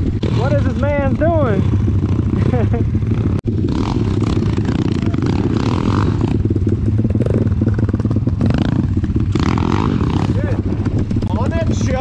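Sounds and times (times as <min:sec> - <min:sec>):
other pit bikes riding: 0:00.0 - 0:12.0
pit bike engine running: 0:00.0 - 0:12.0.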